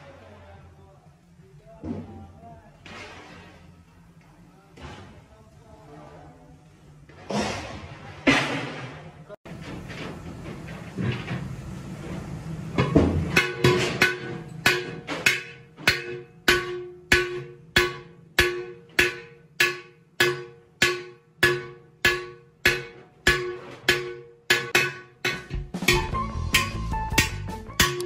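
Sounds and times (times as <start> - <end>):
hammer striking metal pot: 12.8 - 28.0.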